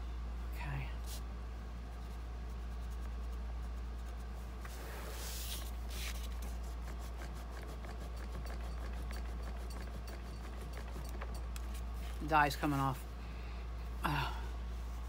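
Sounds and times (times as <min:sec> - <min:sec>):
steady low hum: 0:00.0 - 0:15.0
wipe scrubbing on cardstock: 0:02.5 - 0:10.0.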